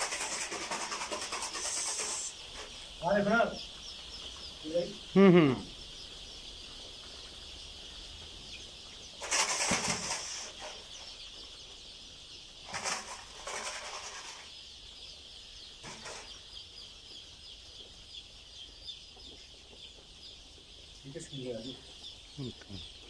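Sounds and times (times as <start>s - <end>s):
rustling and wing-flapping: 0.0s - 4.6s, 6.2s - 11.8s, 12.4s - 14.7s, 15.8s - 16.4s
chicks peeping: 0.0s - 23.0s.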